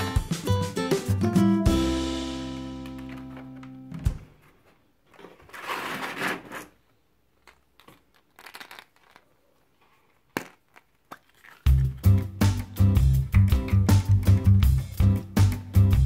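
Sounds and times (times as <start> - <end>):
foil and paper crinkling: 5.2 - 6.8
plastic eggs knocking together: 7.4 - 9.3, 10.2 - 12.7.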